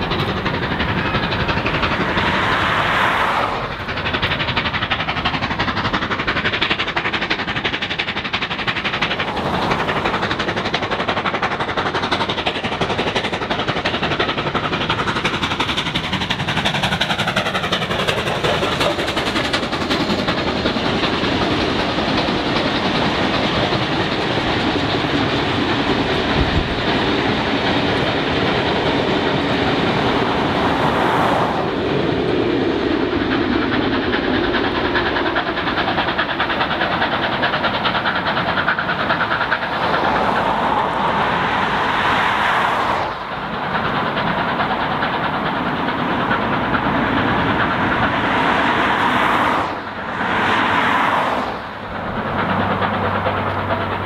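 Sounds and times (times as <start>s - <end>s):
train wheels clicking over rail joints: 0.0s - 54.0s
car passing: 1.9s - 3.9s, 30.2s - 31.8s, 39.7s - 43.4s, 48.0s - 52.0s.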